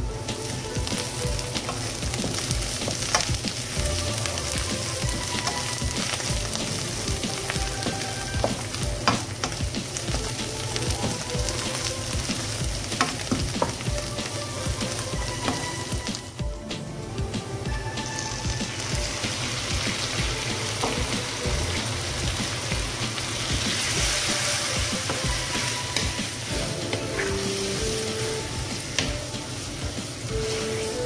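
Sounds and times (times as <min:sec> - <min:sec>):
onions sizzling in oil: 0:00.0 - 0:31.0
wooden spatula scraping wok: 0:23.5 - 0:31.0.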